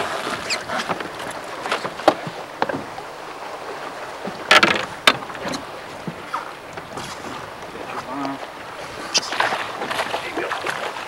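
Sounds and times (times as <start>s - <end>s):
water around a boat: 0.0s - 11.0s
wind: 0.0s - 11.0s.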